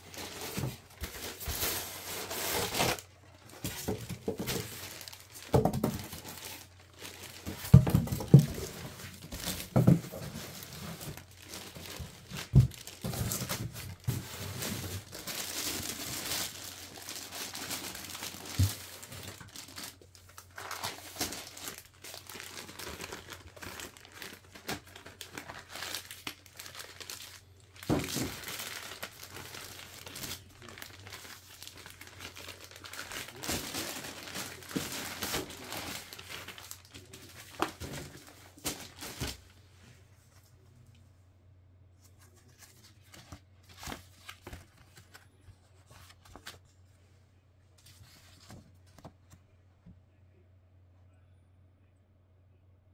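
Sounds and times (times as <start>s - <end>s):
packaging crinkling: 0.0s - 39.5s.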